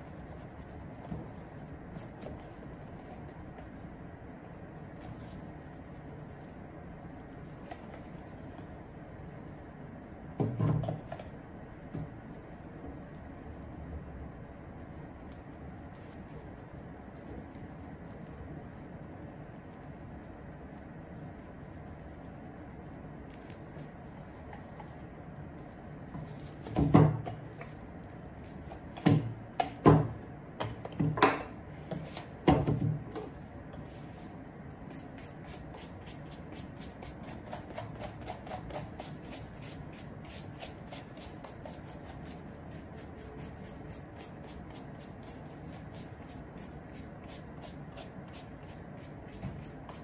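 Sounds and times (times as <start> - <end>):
brush scrubbing a shoe: 0.0 - 3.9, 33.9 - 50.0.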